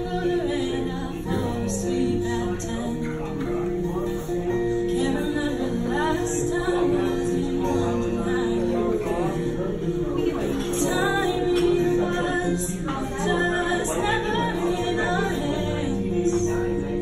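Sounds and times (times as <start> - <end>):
acoustic guitar: 0.0 - 17.0
woman singing: 0.0 - 17.0.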